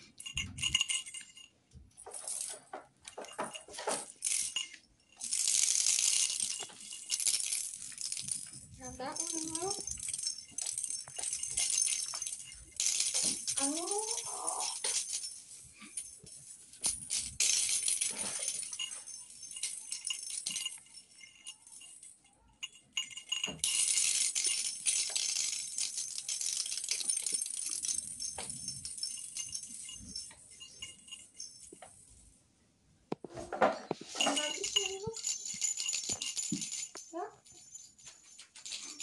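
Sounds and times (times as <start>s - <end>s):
bell in toy ball jingling: 0.0s - 32.2s, 33.9s - 39.0s.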